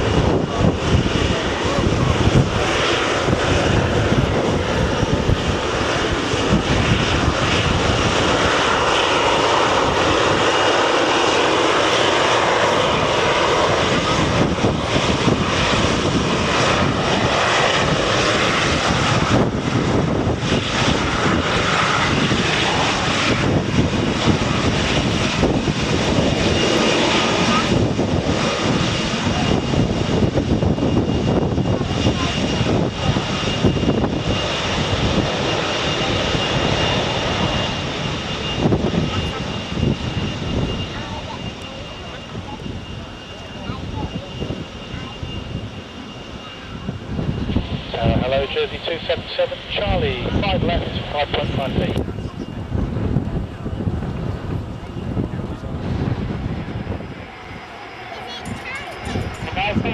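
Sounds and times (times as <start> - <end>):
jet engines running: 0.0 - 59.9.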